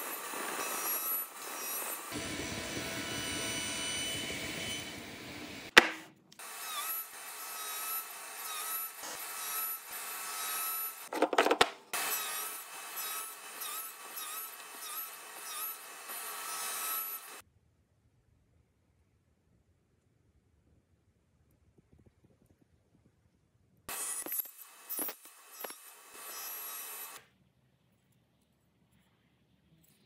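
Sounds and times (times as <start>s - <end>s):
power saw cutting wood: 0.0s - 11.1s, 11.9s - 17.4s, 23.9s - 27.2s.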